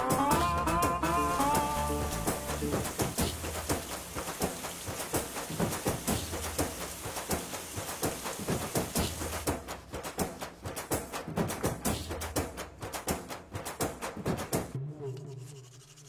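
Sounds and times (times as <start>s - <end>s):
shower water splashing on person: 1.2s - 12.5s.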